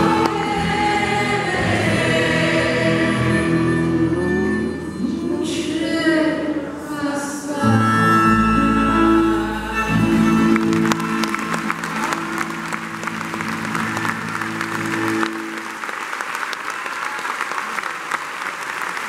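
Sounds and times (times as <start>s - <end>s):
audience applause: 10.4s - 19.0s.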